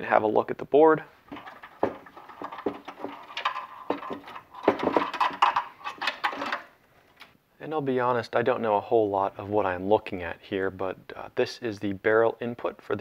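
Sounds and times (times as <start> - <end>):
screwdriver clicking and scraping screws: 1.3 - 6.7.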